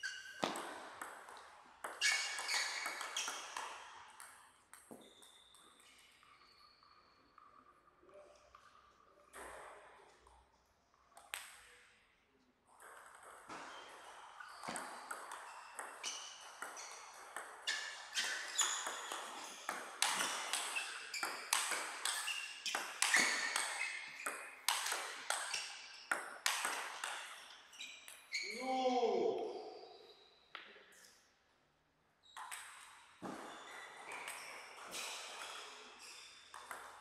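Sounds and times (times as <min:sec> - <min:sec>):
table tennis ball pinging: 0:12.8 - 0:27.4.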